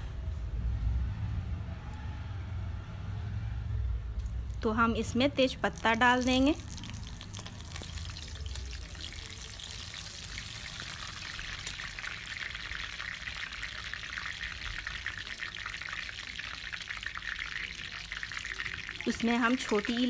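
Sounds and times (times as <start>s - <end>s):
leaves sizzling in hot oil: 5.6s - 20.0s.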